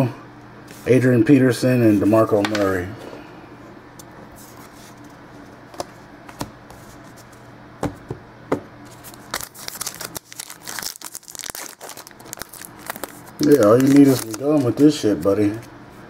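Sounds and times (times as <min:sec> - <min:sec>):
steady low hum: 0:00.0 - 0:16.0
card pack wrapper crinkling: 0:08.9 - 0:15.7.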